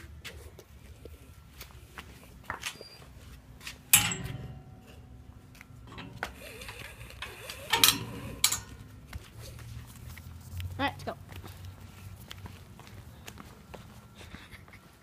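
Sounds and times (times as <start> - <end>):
metallic clanks on iron railing: 3.9 - 5.2, 5.8 - 8.8.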